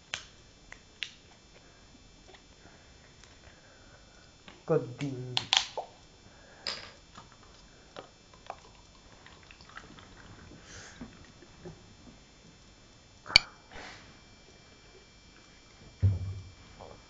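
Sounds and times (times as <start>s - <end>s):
soft sniffs: 13.7s - 14.2s.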